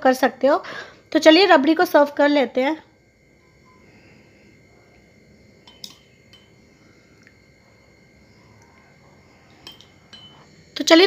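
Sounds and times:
metal spoon clinking on glass bowl: 5.6s - 6.6s, 9.6s - 10.5s.

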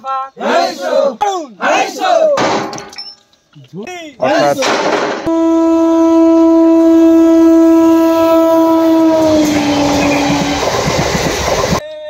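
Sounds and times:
train horn blast: 5.2s - 10.7s
train rumbling on track: 7.3s - 11.8s.

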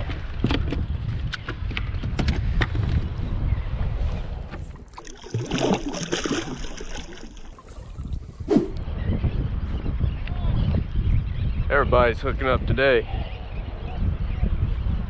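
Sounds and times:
wind rumbling on microphone: 0.0s - 5.8s, 7.4s - 15.0s
water splashing around a hand: 4.8s - 8.8s.

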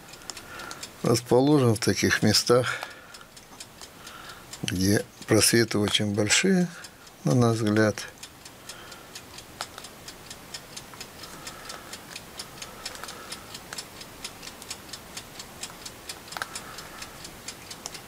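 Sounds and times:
clock ticking rapidly: 0.0s - 18.0s
light clicks: 0.1s - 18.0s.

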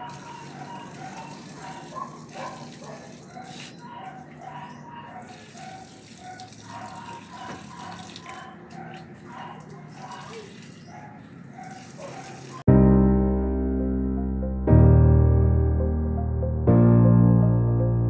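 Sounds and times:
water running: 0.0s - 12.6s.

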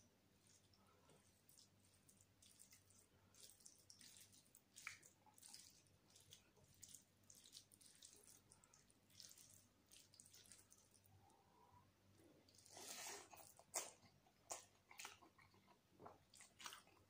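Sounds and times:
hand squelching wet rice: 0.3s - 11.0s.

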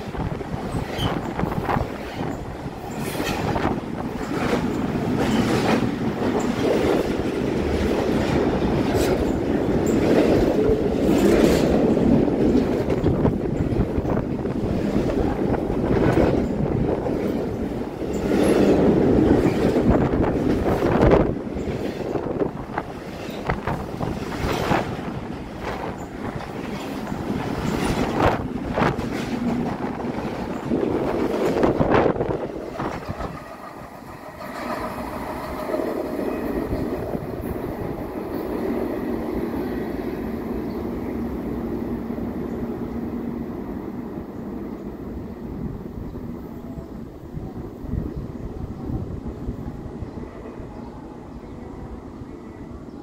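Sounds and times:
wheels clacking over rail joints: 0.0s - 39.4s
steel wheels rumbling on rails: 0.0s - 46.8s
wind buffeting microphone: 0.0s - 53.0s.

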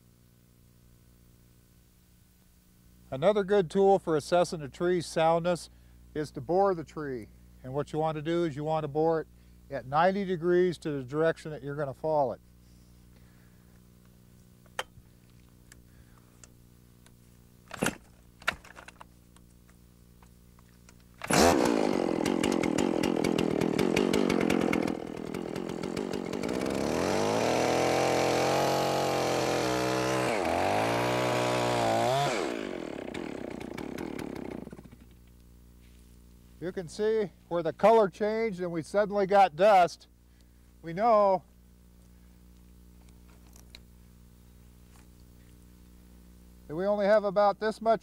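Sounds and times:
chainsaw revving and cutting: 21.2s - 35.1s.

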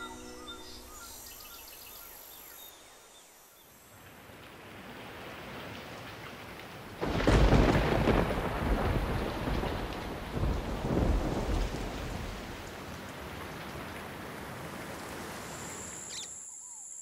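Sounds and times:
rain falling: 3.8s - 16.0s
loud thunderclap: 7.0s - 12.7s
rumbling thunder: 7.0s - 13.9s.

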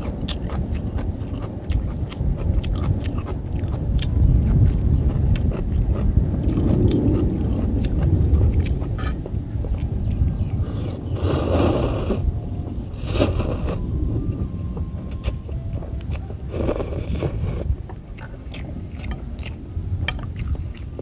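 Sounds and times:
chewing: 0.0s - 12.2s, 13.0s - 13.8s, 15.1s - 21.0s
wind rumble on microphone: 0.0s - 21.0s
man slurping noodles: 10.8s - 12.2s, 13.0s - 13.8s.

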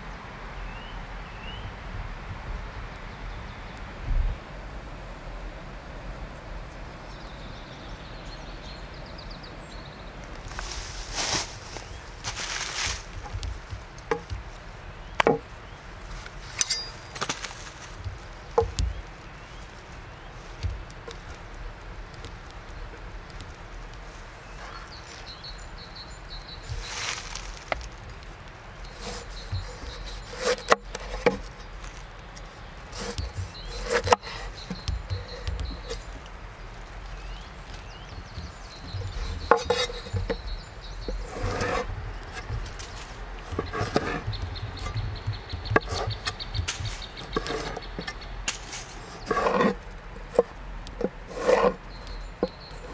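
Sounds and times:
metallic ring of blade: 16.6s - 17.0s
knife slicing through rind: 32.9s - 36.0s
knife knocking on wooden board: 43.5s - 46.8s.

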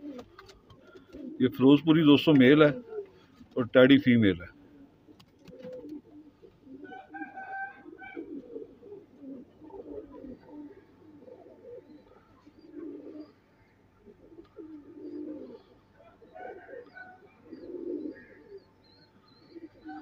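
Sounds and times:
pigeons cooing: 0.0s - 3.6s, 4.4s - 20.0s.

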